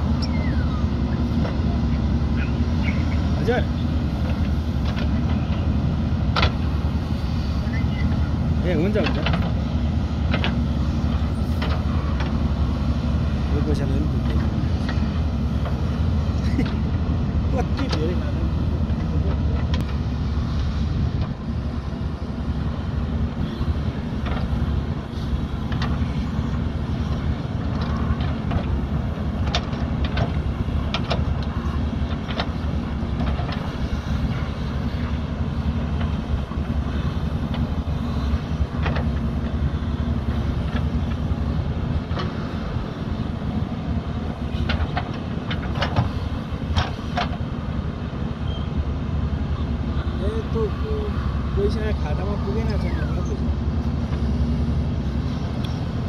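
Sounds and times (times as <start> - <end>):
diesel engine running: 0.0 - 56.0.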